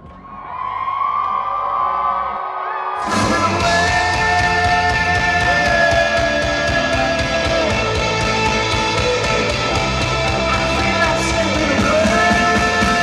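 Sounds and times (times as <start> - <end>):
steady rock beat: 3.0 - 13.0
electric guitar sliding notes: 3.1 - 13.0.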